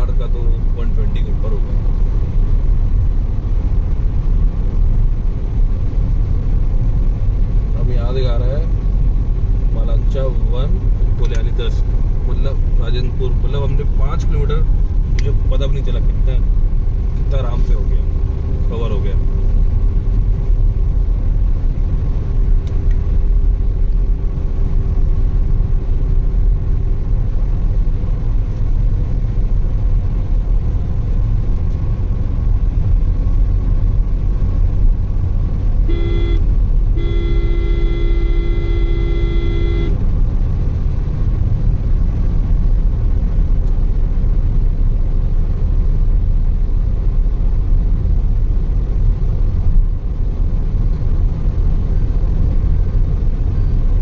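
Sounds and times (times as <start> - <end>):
tyre and wind rumble in car: 0.0 - 54.0
vehicle horn: 35.8 - 40.0.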